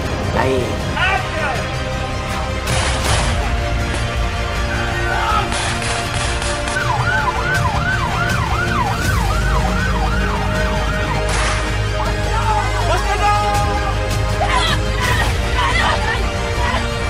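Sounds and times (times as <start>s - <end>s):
background music with low drone: 0.0s - 17.0s
siren yelping: 6.7s - 12.3s.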